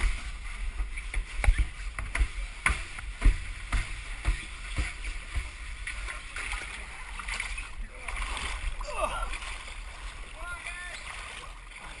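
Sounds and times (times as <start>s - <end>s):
body knocking against pipe wall: 1.1s - 5.6s.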